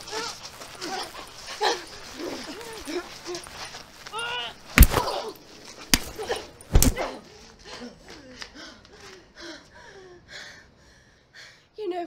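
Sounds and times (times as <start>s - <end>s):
strained breaths and whimpers: 0.0s - 4.2s
body impacts: 1.6s - 7.2s.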